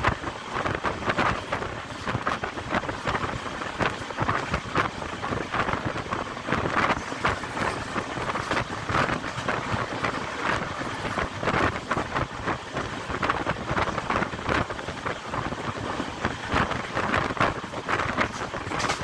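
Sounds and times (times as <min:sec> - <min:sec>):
train running noise: 0:00.0 - 0:19.0
wind buffeting microphone: 0:00.0 - 0:19.0.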